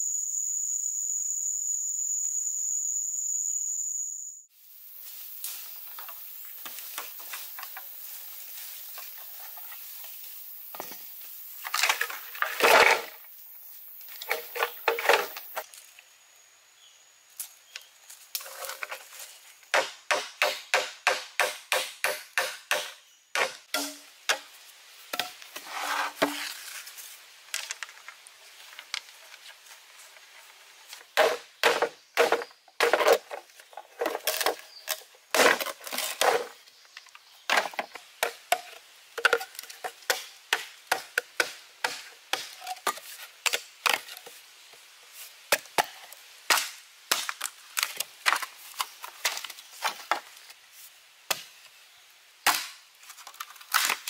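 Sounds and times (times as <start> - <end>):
machete chopping bamboo: 19.7 - 24.5, 31.2 - 33.2, 40.1 - 44.0, 45.5 - 48.4, 52.4 - 52.8.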